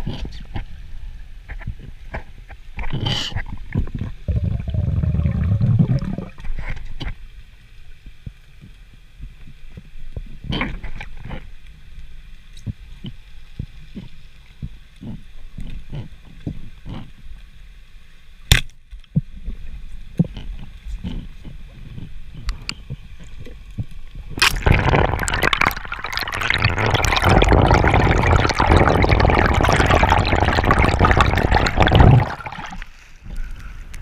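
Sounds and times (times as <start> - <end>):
low gurgling rumble: 2.8 - 7.1, 19.5 - 34.0
muffled underwater clicks and knocks: 12.5 - 17.2, 18.5 - 32.8.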